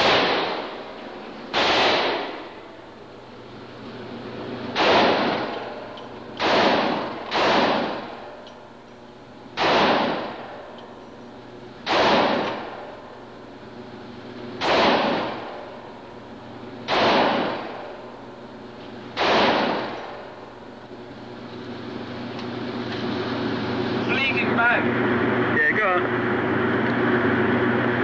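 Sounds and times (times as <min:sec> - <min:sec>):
pistol shots echoing: 0:00.0 - 0:00.9, 0:01.5 - 0:02.8, 0:04.7 - 0:08.5, 0:09.6 - 0:10.7, 0:11.8 - 0:13.0, 0:14.6 - 0:15.8, 0:16.9 - 0:18.0, 0:19.2 - 0:20.4.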